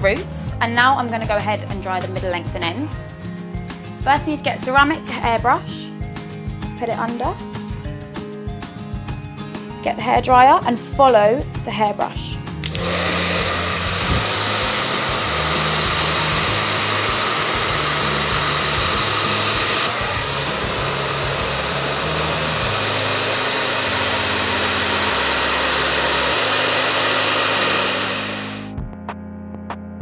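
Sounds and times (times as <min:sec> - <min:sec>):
hair dryer running: 0:12.6 - 0:28.8.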